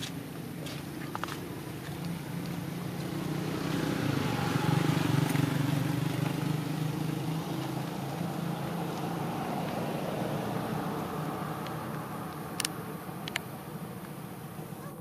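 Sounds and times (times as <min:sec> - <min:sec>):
motorbike engine passing: 0:00.0 - 0:15.0.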